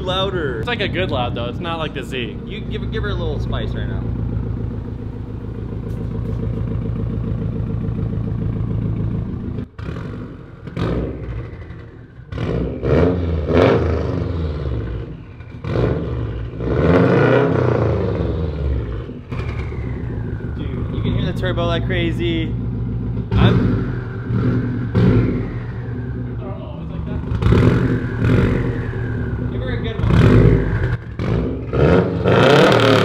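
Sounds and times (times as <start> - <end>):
car engine idling and revving: 0.0 - 33.0.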